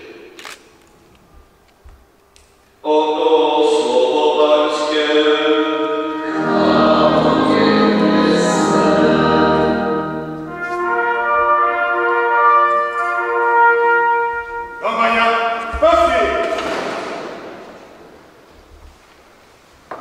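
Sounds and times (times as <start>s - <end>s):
brass band playing slow chords: 5.4s - 15.7s.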